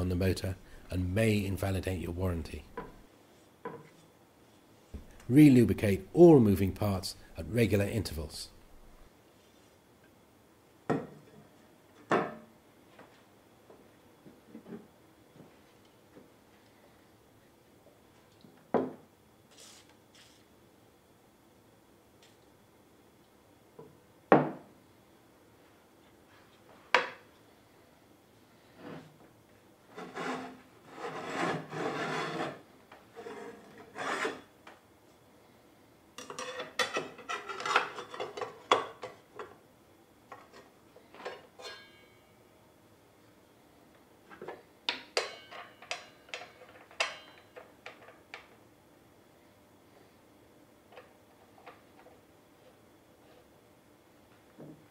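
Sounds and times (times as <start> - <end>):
rubbing and scraping: 29.9 - 34.5.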